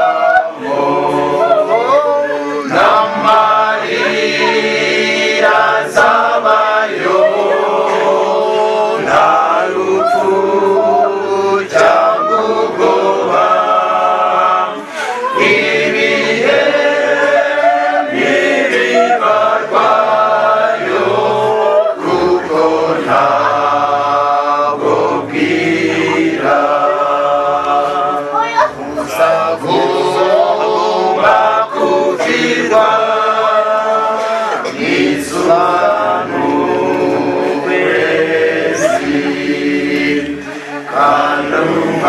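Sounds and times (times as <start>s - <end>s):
choir singing a cappella: 0.0s - 42.0s.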